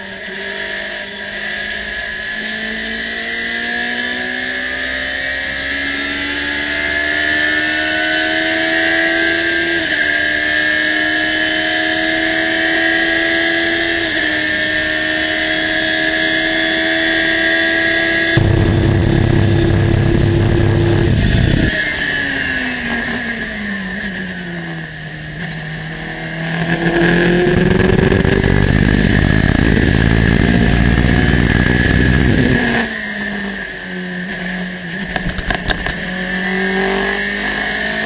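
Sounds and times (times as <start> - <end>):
race car engine at full throttle: 0.0 - 38.0
loud rushing noise: 18.4 - 22.2, 27.3 - 32.8.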